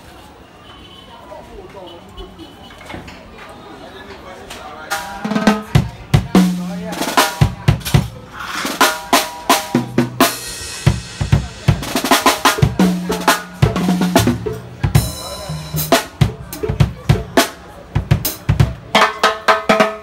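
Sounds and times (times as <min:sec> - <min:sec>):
snare drum strokes: 0:04.9 - 0:20.0
cymbal crash: 0:08.4 - 0:12.8.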